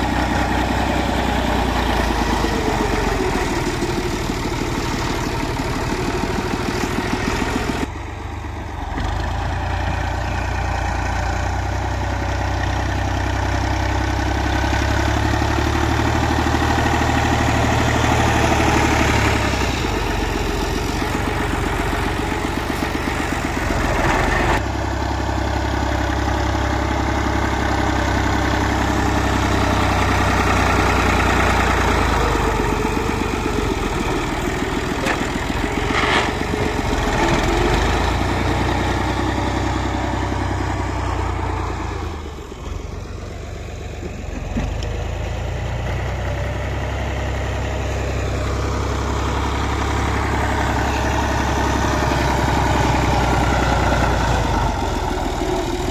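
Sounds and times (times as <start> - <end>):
tractor diesel engine running: 0.0 - 55.9
blade pushing soil: 29.6 - 39.5.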